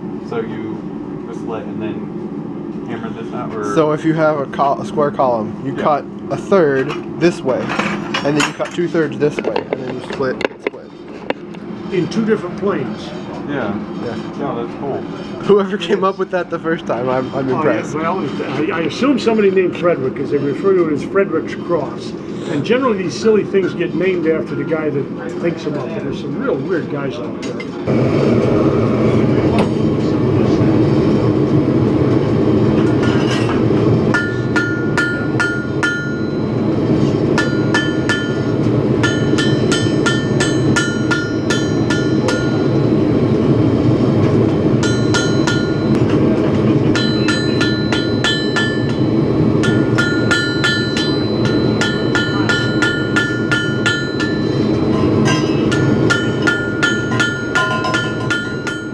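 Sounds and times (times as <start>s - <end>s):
steady low roar: 27.8s - 34.6s
hammer striking anvil: 34.1s - 36.5s, 37.3s - 42.8s, 44.8s - 46.2s, 46.9s - 58.9s
anvil ringing: 34.1s - 36.6s, 37.4s - 42.9s, 44.8s - 46.1s, 46.9s - 58.9s.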